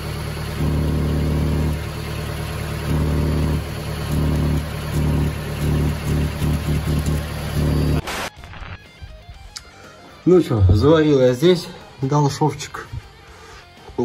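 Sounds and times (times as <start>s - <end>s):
car engine idling exhaust: 0.0s - 8.0s.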